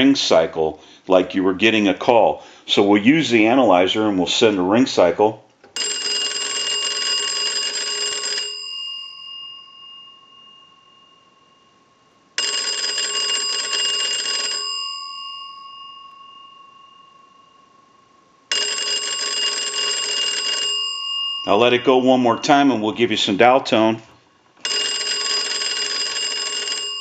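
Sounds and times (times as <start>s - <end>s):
telephone bells ringing: 5.8s - 17.9s, 18.5s - 22.7s, 24.6s - 27.0s.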